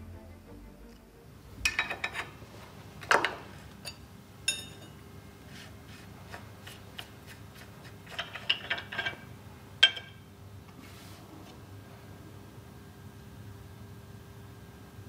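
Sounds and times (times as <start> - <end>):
weak steady hum: 0.0 - 6.3.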